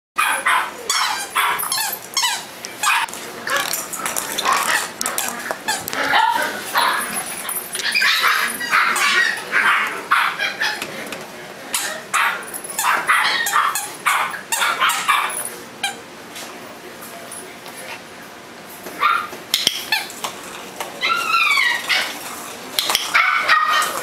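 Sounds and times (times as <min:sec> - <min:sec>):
puppy yipping and barking: 0:00.2 - 0:03.7, 0:07.8 - 0:10.8, 0:11.8 - 0:15.3, 0:19.0 - 0:19.3, 0:21.0 - 0:22.2, 0:23.1 - 0:24.0.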